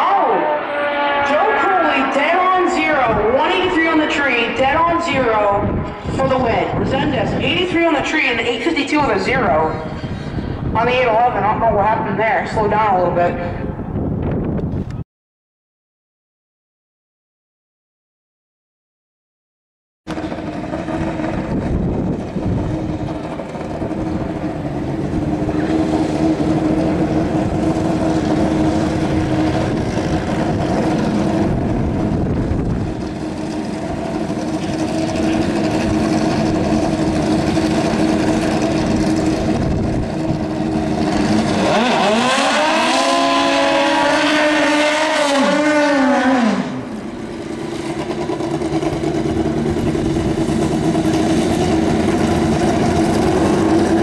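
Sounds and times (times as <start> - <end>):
motorcycle engines running: 0.0 - 13.2, 20.1 - 54.0
motorcycle engine revving: 20.1 - 54.0.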